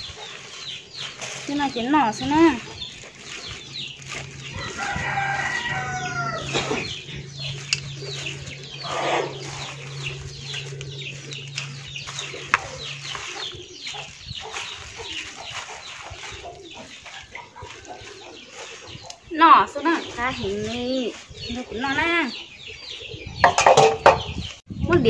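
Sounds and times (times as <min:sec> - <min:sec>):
plastic crackling while tossing leaves: 0:00.0 - 0:22.3
hens clucking: 0:00.0 - 0:24.5
low steady hum: 0:02.4 - 0:13.8
rooster crowing: 0:04.5 - 0:07.6.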